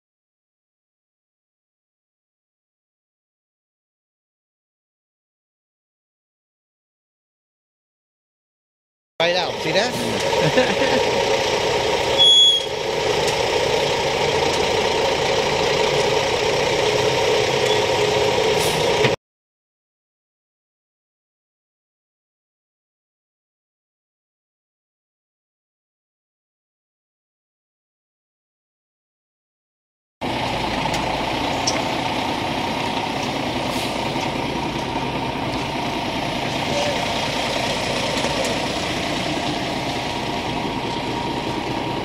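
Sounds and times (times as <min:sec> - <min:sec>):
diesel truck engine running: 0:09.2 - 0:19.2, 0:30.2 - 0:42.0.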